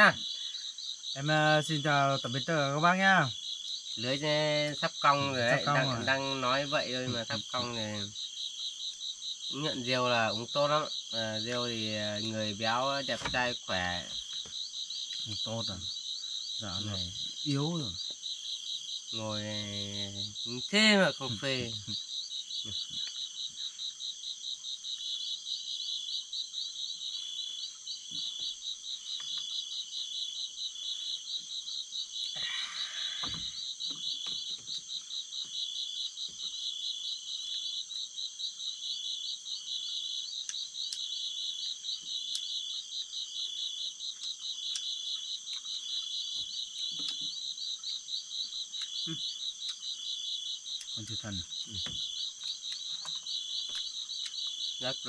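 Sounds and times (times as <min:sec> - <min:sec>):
high insect trill: 0:00.0 - 0:55.0
pulsing insect call: 0:00.0 - 0:55.0.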